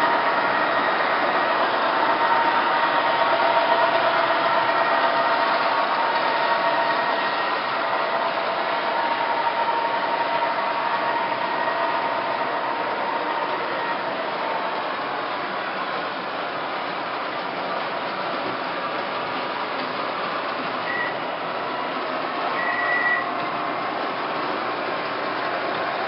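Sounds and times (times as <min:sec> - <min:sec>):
model train motors humming: 0:00.0 - 0:26.0
whining tones: 0:22.4 - 0:23.6.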